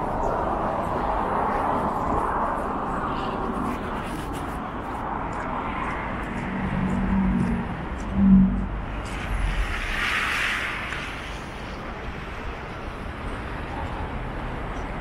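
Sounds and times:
low engine hum: 0:00.0 - 0:15.0
vehicles passing: 0:00.0 - 0:15.0
hiss of vehicle going by: 0:09.2 - 0:12.0.

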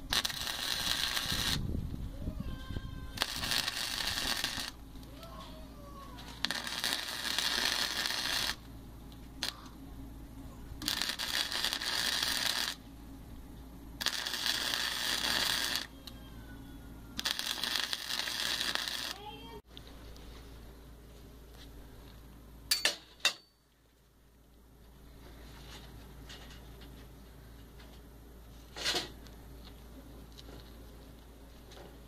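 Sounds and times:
welder arc crackling: 0:00.0 - 0:09.8, 0:10.8 - 0:12.8, 0:14.0 - 0:16.2, 0:17.1 - 0:19.7.

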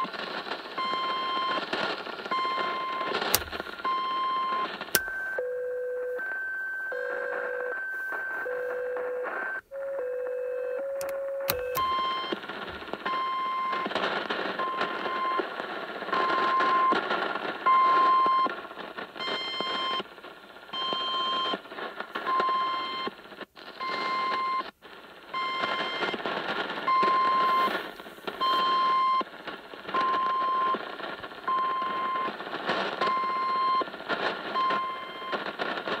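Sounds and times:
radio static: 0:00.0 - 0:36.0
buzzy radio beeps: 0:02.3 - 0:14.0, 0:26.8 - 0:29.3, 0:29.9 - 0:30.8, 0:31.4 - 0:32.4, 0:33.0 - 0:35.4.

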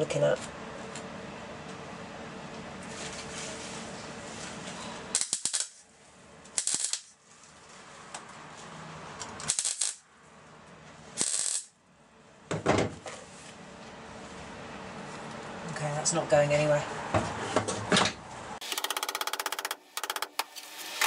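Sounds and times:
welder bursts: 0:06.6 - 0:07.1, 0:09.4 - 0:10.0, 0:11.2 - 0:11.7.

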